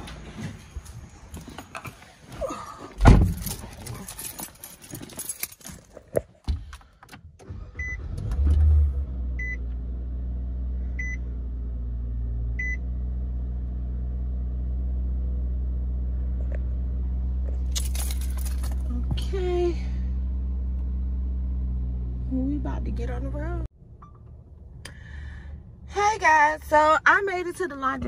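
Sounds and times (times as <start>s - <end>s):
car engine starting and idling: 0.0s - 28.0s.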